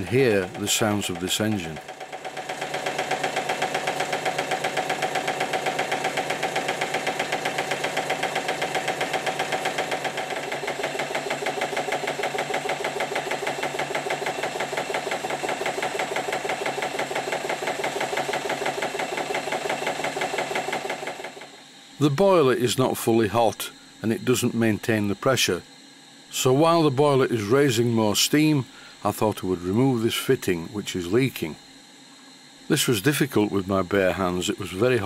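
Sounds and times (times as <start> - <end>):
steam exhaust beat: 0.0 - 21.2
mechanical knocks: 0.0 - 21.5
model steam engine running: 0.0 - 23.3, 32.7 - 35.0.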